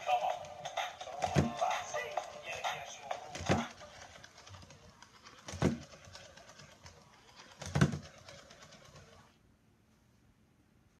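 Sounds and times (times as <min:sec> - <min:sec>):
toy thumping on wooden table: 0:01.2 - 0:01.6, 0:03.3 - 0:03.8, 0:05.4 - 0:06.0, 0:07.6 - 0:08.1.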